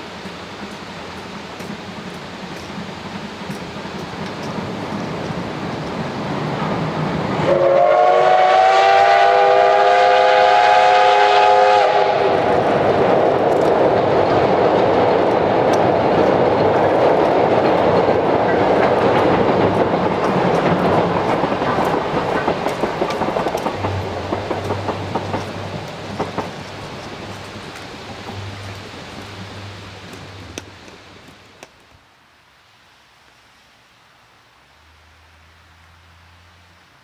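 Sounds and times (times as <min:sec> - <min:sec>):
train rumbling over bridge: 0:00.0 - 0:32.0
steam locomotive whistle: 0:07.4 - 0:12.6.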